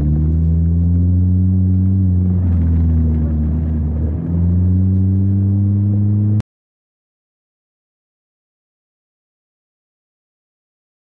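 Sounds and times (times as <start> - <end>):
car engine droning in cabin: 0.0 - 6.4.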